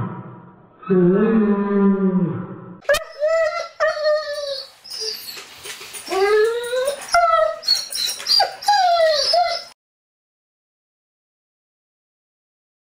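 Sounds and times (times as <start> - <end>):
dog whining: 2.9 - 9.8.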